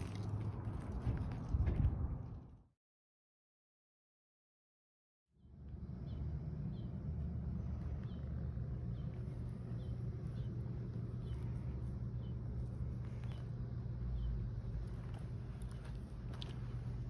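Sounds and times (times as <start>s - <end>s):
steady low rumble: 5.4s - 17.0s
small bird chirping: 7.6s - 15.9s.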